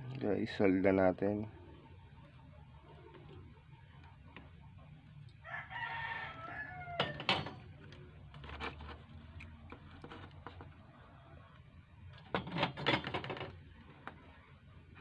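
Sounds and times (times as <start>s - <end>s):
rooster crowing: 5.4s - 7.5s.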